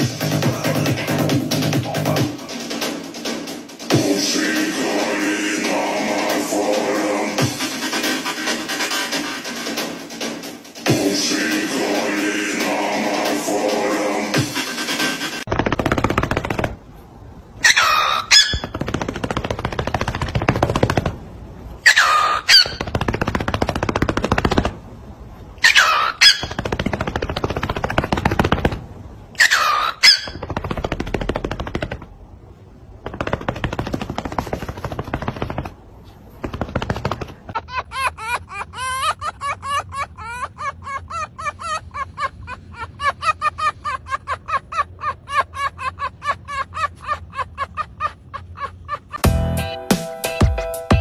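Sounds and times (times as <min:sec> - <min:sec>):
cockatiel harsh rattling: 0:17.6 - 0:21.0, 0:21.9 - 0:24.7, 0:25.6 - 0:28.8, 0:29.4 - 0:32.1.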